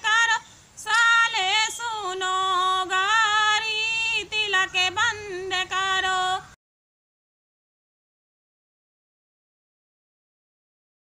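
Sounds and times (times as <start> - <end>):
woman singing unaccompanied: 0.0 - 6.6.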